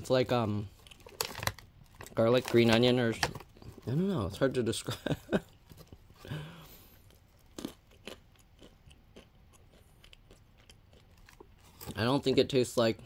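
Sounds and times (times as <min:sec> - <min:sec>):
almonds being chewed: 0:05.4 - 0:12.5.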